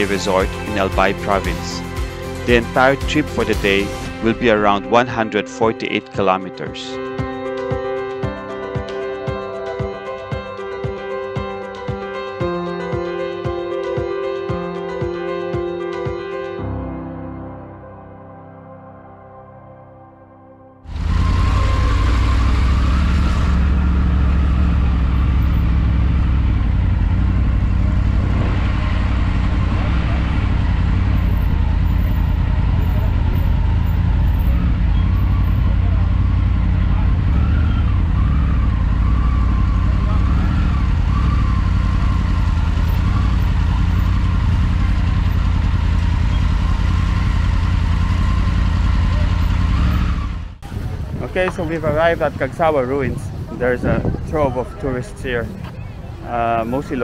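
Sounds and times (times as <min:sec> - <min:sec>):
motorcycle engine low rumble: 0:00.0 - 0:04.4, 0:20.9 - 0:57.0
road noise: 0:00.0 - 0:05.0, 0:20.8 - 0:57.0.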